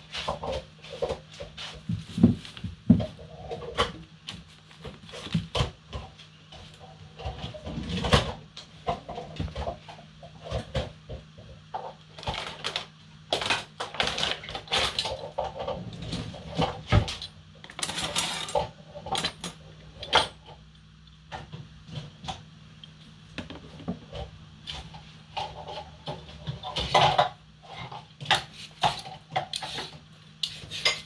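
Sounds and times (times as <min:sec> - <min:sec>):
utensils and dishes clattering: 0:05.1 - 0:20.6, 0:23.4 - 0:31.0.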